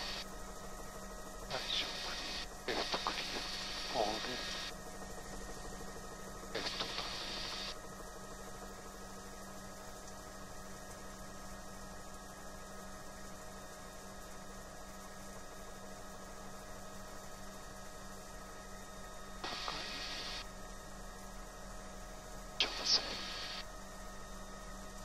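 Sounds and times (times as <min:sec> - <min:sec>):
helicopter engine drone: 0:00.0 - 0:00.3, 0:01.5 - 0:07.8, 0:19.4 - 0:20.4, 0:22.6 - 0:23.6.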